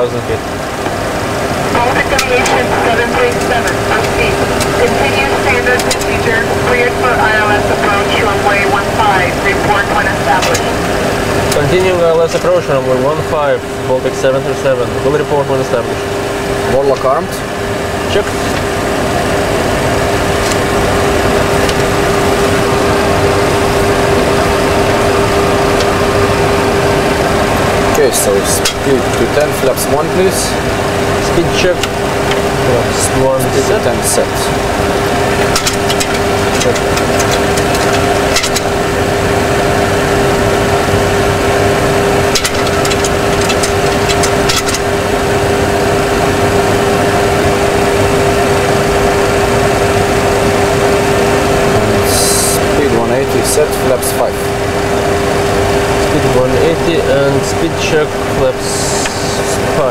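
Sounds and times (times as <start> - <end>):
cockpit air and engine noise: 0.0 - 59.9
mid-pitched hum: 0.0 - 59.9.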